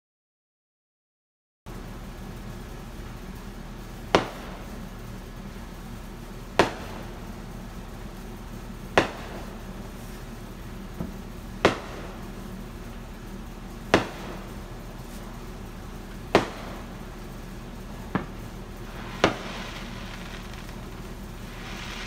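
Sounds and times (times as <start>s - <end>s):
small firework pop: 4.2s - 4.6s, 6.6s - 7.2s, 9.0s - 9.5s, 11.0s - 12.1s, 13.9s - 14.4s, 16.3s - 16.9s, 18.1s - 22.0s
fireworks bangs: 6.6s - 9.8s, 13.9s - 22.0s.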